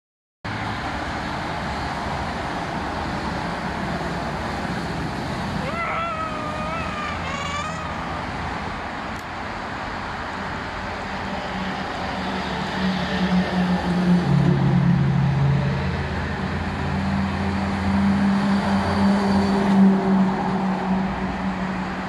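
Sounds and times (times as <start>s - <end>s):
diesel engine hum: 0.5s - 22.0s
trucks and cars passing: 0.5s - 22.0s
wavering high-pitched squeal: 5.6s - 8.8s.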